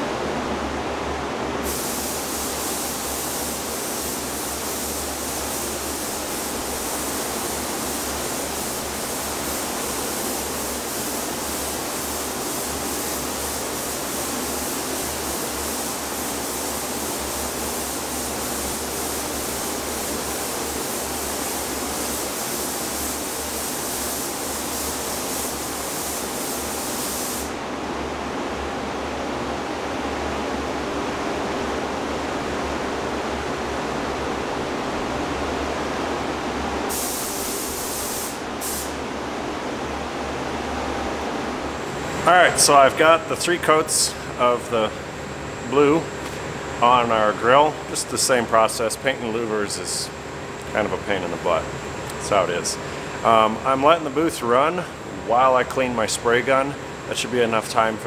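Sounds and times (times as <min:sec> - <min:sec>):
ventilation rushing noise: 0:00.0 - 0:58.0
paint spray gun hissing: 0:01.6 - 0:27.6, 0:36.9 - 0:39.0.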